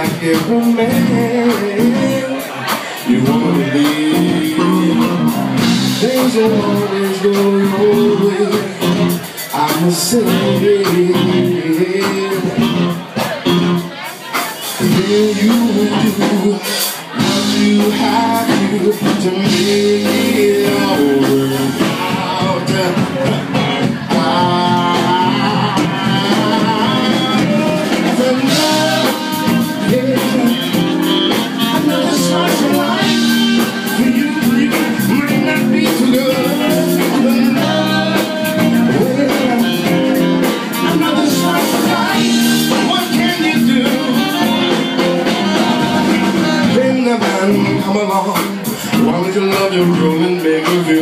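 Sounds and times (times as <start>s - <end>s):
electric guitar: 0.0s - 51.0s
live blues band playing: 0.0s - 51.0s
saxophone solo: 24.8s - 35.6s, 42.0s - 46.7s.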